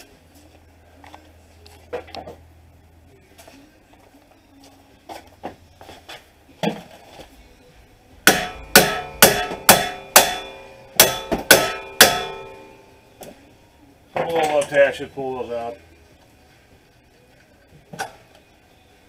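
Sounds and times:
hammer striking metal bolt: 8.3 - 12.8.

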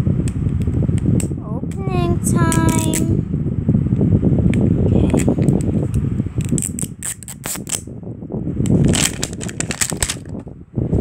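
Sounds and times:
plastic wrapping crinkling: 8.8 - 10.4.

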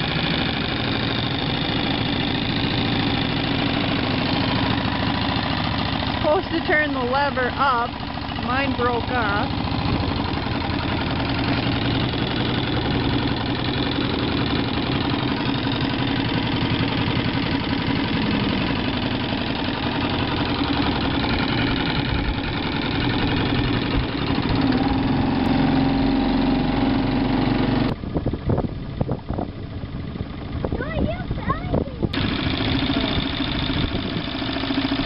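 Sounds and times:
outboard motor running: 0.0 - 35.0.

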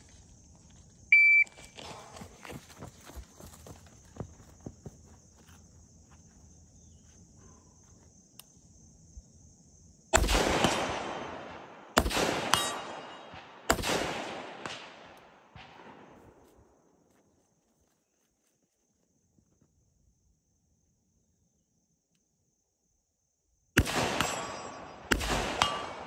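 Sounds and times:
rifle shots with echo: 10.2 - 16.4, 23.8 - 26.0.

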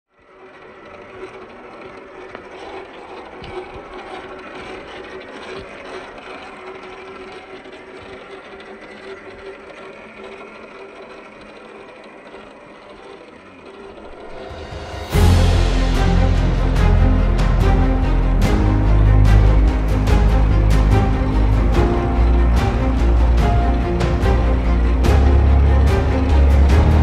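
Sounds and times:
toy car motor whirring: 0.2 - 14.9.

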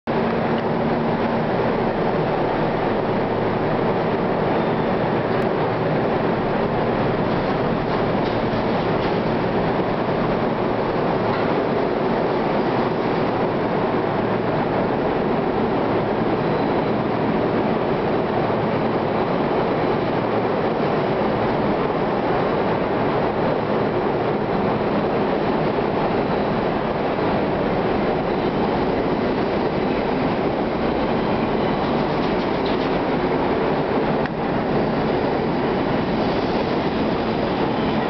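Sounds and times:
subway train rumbling past: 0.1 - 38.0.

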